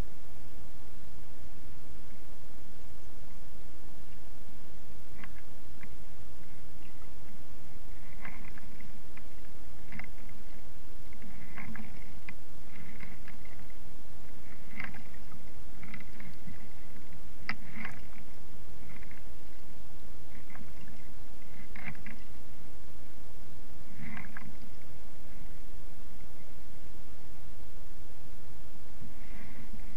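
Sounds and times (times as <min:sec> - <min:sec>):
steady low rumble: 0:00.0 - 0:29.9
paddle splashing water: 0:07.9 - 0:19.6, 0:20.3 - 0:22.4, 0:23.8 - 0:24.9.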